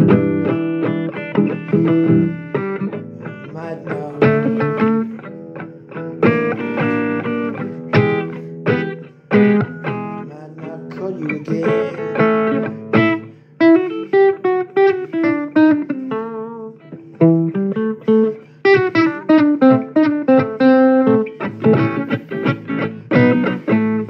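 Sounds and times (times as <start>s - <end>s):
blues guitar playing: 0.0s - 24.0s.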